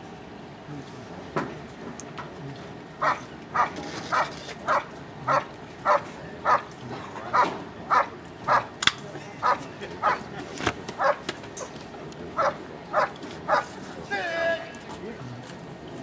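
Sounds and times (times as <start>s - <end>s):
dog barking: 3.0s - 6.7s, 7.3s - 8.7s, 9.4s - 10.3s, 11.0s - 11.7s, 12.4s - 13.7s.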